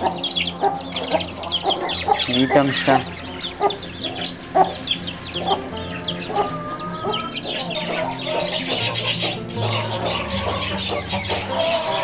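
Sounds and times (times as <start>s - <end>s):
chickens clucking: 0.0s - 12.0s.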